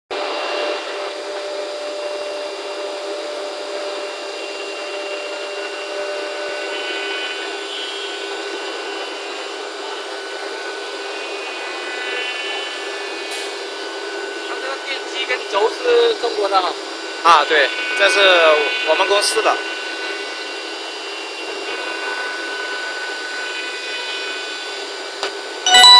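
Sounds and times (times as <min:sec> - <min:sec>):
wood router spindle whine: 0:00.2 - 0:25.2.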